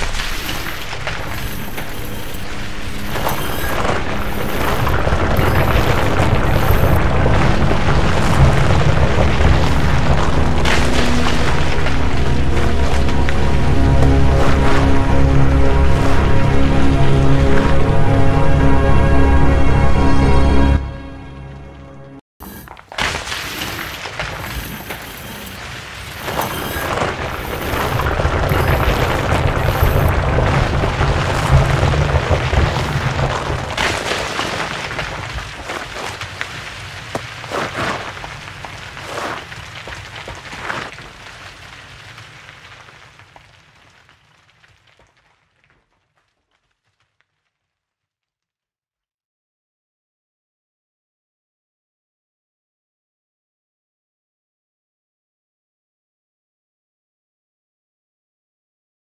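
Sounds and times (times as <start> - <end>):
rubble crackling and tumbling: 0.0 - 17.8, 22.6 - 47.8
deep rumble: 0.0 - 21.2, 26.3 - 35.7.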